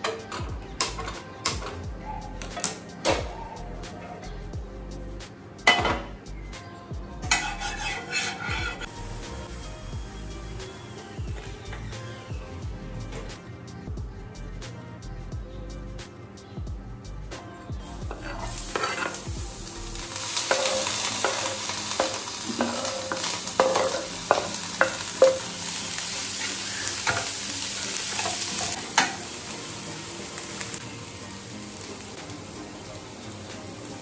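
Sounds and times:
food sizzling in a pan: 7.3 - 13.8, 17.8 - 34.0.

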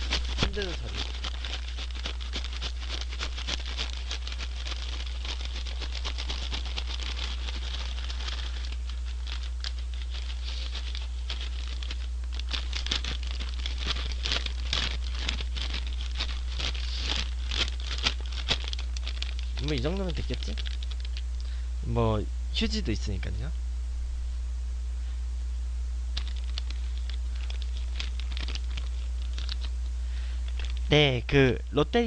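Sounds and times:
paper bag of fries shaken: 0.0 - 21.3, 26.2 - 29.7, 30.5 - 31.0
steady low hum: 0.0 - 32.0.

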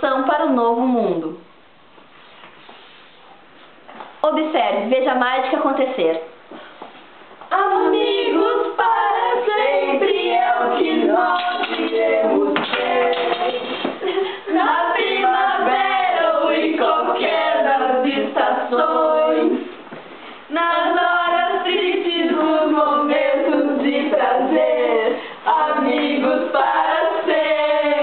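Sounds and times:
girls singing together: 7.4 - 28.0.

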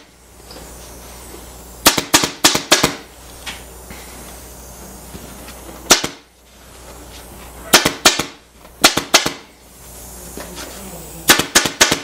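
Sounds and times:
staple gun firing: 11.3 - 12.0.

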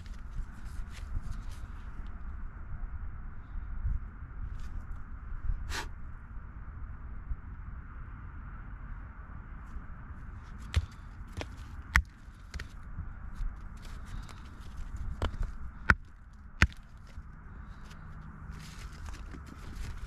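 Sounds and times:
hammer cracking limestone: 15.2 - 17.0.

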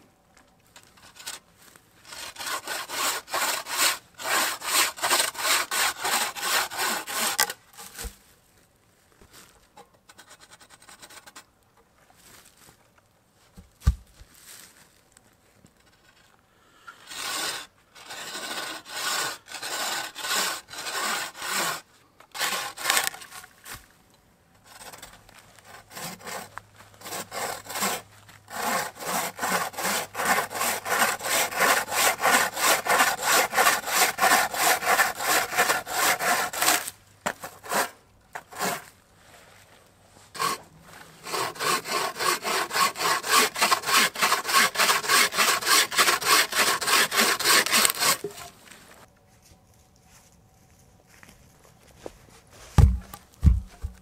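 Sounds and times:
bucksaw rasping through log: 2.1 - 8.2, 17.0 - 23.4, 24.7 - 38.9, 40.3 - 48.5.

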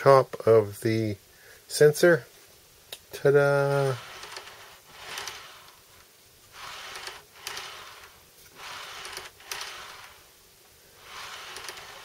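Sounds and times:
model train wheels rolling: 3.5 - 10.3, 11.0 - 12.0.

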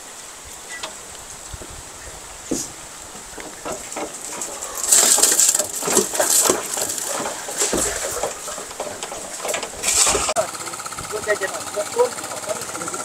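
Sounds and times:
wet concrete sliding into formwork: 2.4 - 10.4
knocks on wooden formwork: 2.5 - 10.4.

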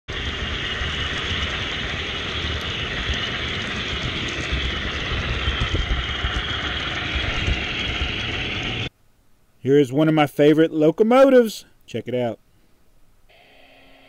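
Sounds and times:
model train wheels rolling on rails: 0.1 - 8.9.

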